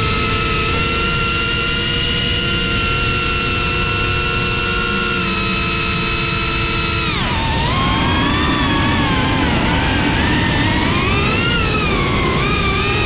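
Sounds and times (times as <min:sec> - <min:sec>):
drone motors whining: 0:00.0 - 0:13.0
wind rumble: 0:05.2 - 0:13.0.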